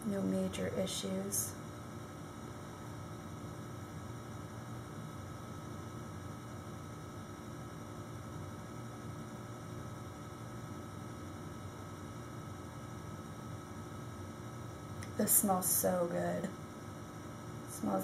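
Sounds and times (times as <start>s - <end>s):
low electrical hum with hiss: 0.0s - 18.0s.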